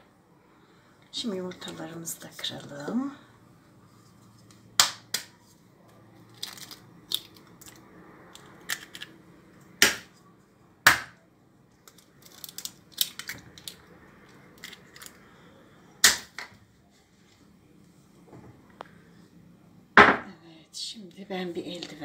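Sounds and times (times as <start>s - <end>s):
eggshell crackling apart: 6.2s - 7.8s, 11.9s - 13.8s.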